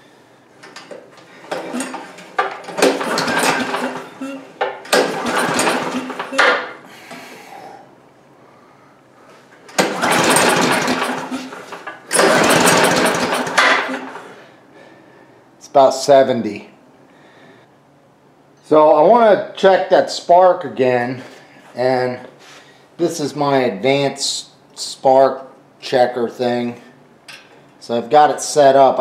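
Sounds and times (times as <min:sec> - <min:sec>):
engine cranking without firing: 0:00.6 - 0:06.7, 0:09.7 - 0:14.3.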